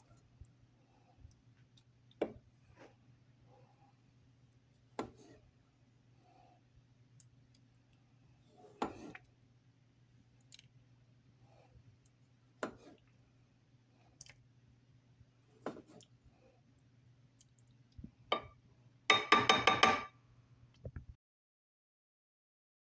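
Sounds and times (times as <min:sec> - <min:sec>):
spoon knocking on pot: 0:18.3 - 0:18.5, 0:19.1 - 0:20.2.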